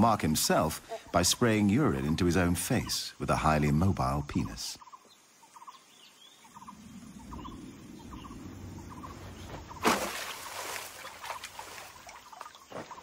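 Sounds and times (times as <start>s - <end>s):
trilled bird calls: 0.0s - 13.0s
bird splashing into water: 9.7s - 12.6s.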